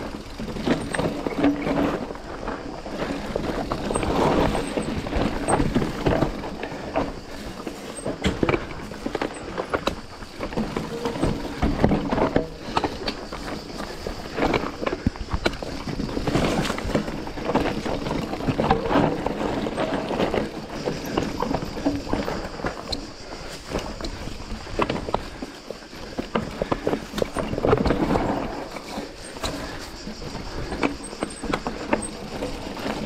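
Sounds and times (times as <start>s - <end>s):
mountain bike rattling over rocks: 0.0s - 33.0s.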